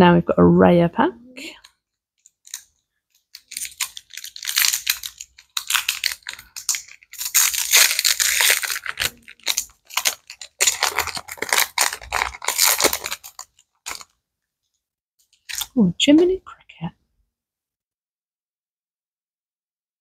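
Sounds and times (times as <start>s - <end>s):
foil wrapper crinkling and tearing: 2.2s - 14.2s, 15.2s - 15.8s.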